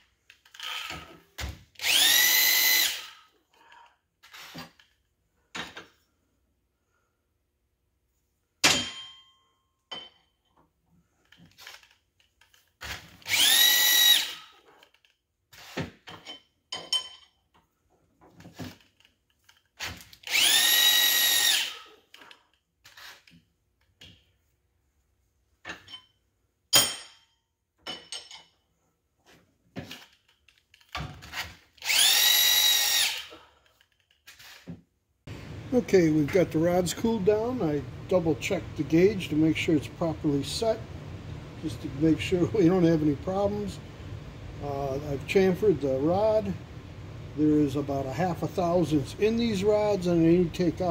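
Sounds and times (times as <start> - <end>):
angle grinder whining: 1.8 - 3.2, 13.2 - 14.6, 20.3 - 22.0, 31.8 - 33.4.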